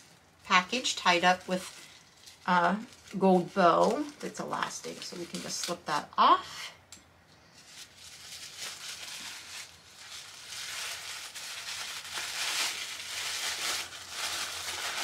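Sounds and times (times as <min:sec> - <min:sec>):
paper rustling and crinkling: 0:07.5 - 0:15.0.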